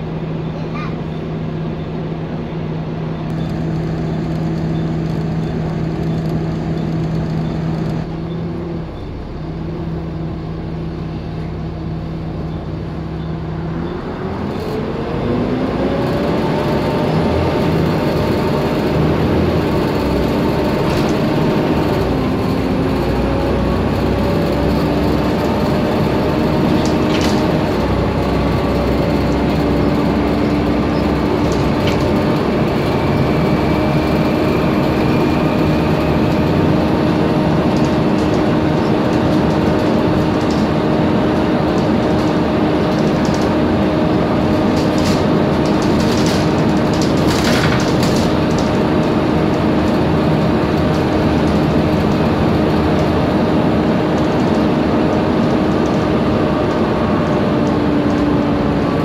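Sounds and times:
bus engine whine: 0:00.0 - 0:59.0
bodywork rattles and knocks: 0:36.2 - 0:58.3.

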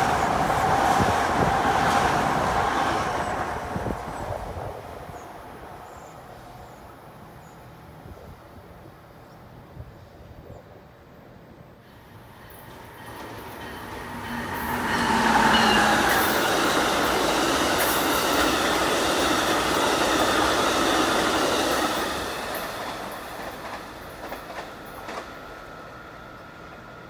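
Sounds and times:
passenger train passing: 0:00.0 - 0:10.2, 0:11.0 - 0:27.0
wheels clacking over rails: 0:12.5 - 0:25.4.

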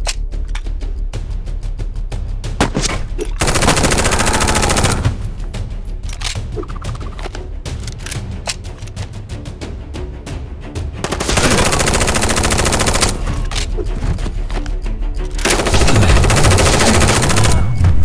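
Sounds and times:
music: 0:00.0 - 0:18.0
automatic gunfire: 0:03.4 - 0:05.1, 0:11.0 - 0:13.3, 0:15.5 - 0:17.8.

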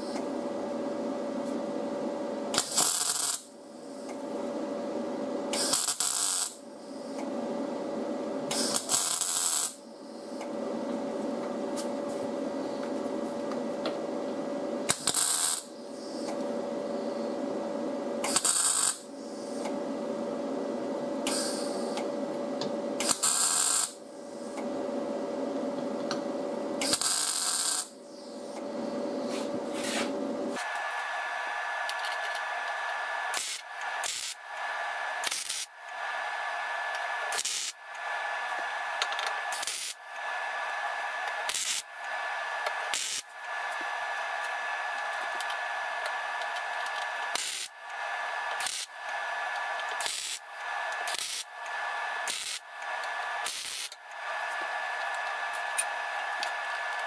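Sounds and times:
steady welder hum: 0:00.0 - 0:57.0
welder crackling bursts: 0:02.5 - 0:03.5, 0:05.6 - 0:06.6, 0:08.5 - 0:09.8, 0:14.9 - 0:15.7, 0:18.2 - 0:19.0, 0:23.0 - 0:24.0, 0:26.8 - 0:27.9, 0:30.6 - 0:57.0.

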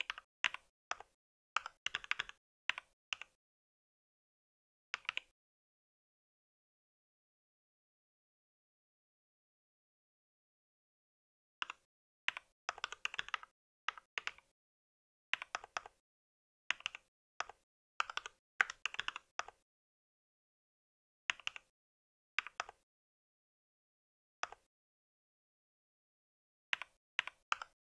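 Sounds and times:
mechanical keyboard typing: 0:00.0 - 0:03.4, 0:11.6 - 0:14.5, 0:16.7 - 0:19.6, 0:21.3 - 0:21.7.

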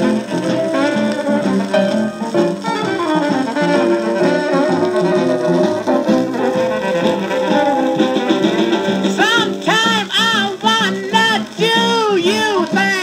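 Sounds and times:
blues band on a record: 0:00.0 - 0:13.0.

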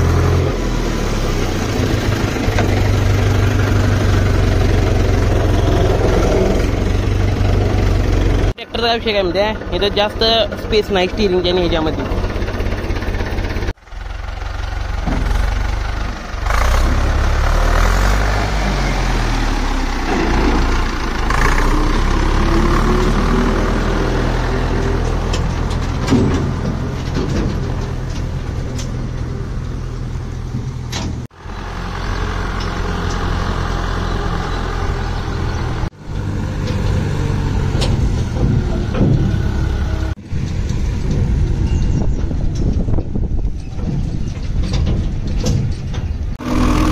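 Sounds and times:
tractor diesel engine running: 0:00.0 - 0:46.9.

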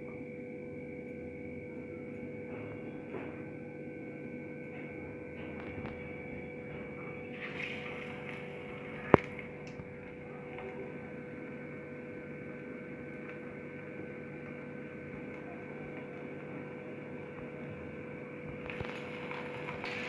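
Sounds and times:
electrical hum: 0:00.0 - 0:20.0
oil sizzling: 0:07.3 - 0:10.2, 0:18.6 - 0:20.0.

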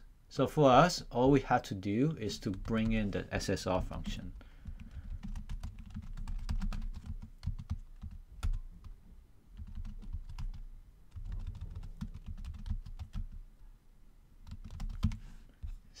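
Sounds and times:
typing on a keyboard: 0:04.6 - 0:08.6, 0:09.6 - 0:13.4, 0:14.4 - 0:15.2.

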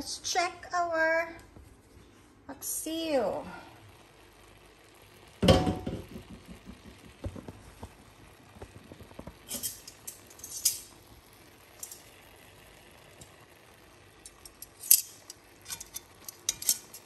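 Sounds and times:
metal utensil scraping cast-iron pot: 0:09.4 - 0:11.0, 0:14.2 - 0:17.0.

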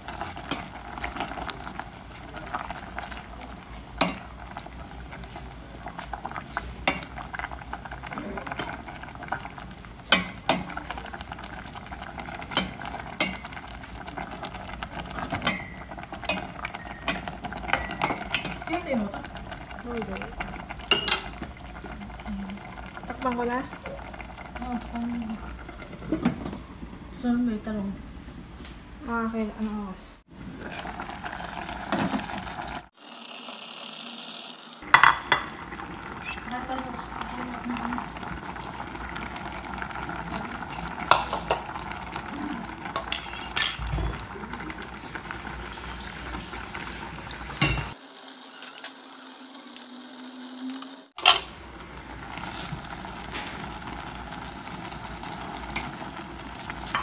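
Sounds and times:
metal spoon stirring in pot: 0:00.0 - 0:01.5, 0:04.0 - 0:04.5, 0:05.1 - 0:07.6, 0:12.4 - 0:13.9, 0:15.0 - 0:18.9, 0:43.0 - 0:44.0
pot bubbling: 0:00.0 - 0:57.0
metal cookware clinking: 0:04.0 - 0:04.3, 0:06.8 - 0:07.2, 0:10.1 - 0:10.8, 0:12.4 - 0:13.6, 0:15.2 - 0:18.9, 0:20.8 - 0:21.4, 0:34.9 - 0:36.8, 0:42.9 - 0:44.2, 0:47.6 - 0:48.0, 0:51.2 - 0:51.5.

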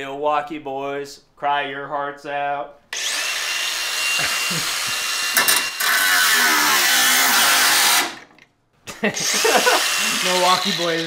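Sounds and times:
cordless power tool running: 0:03.0 - 0:08.4, 0:09.2 - 0:11.0.

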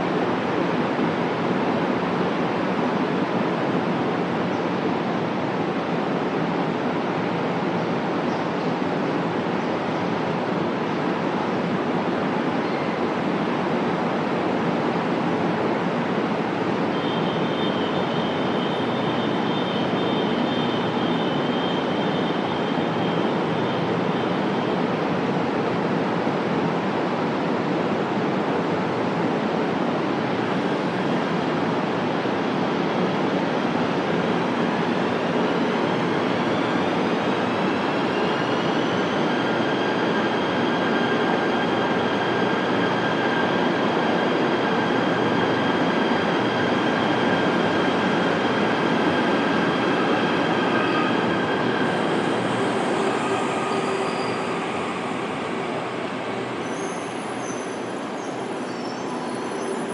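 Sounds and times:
train equipment humming: 0:43.9 - 0:58.5.

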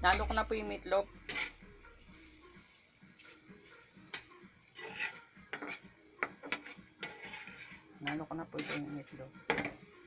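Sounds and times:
utensil scraping a pan: 0:01.2 - 0:01.7, 0:04.1 - 0:09.8
utensil clinking against pan: 0:06.4 - 0:08.9.

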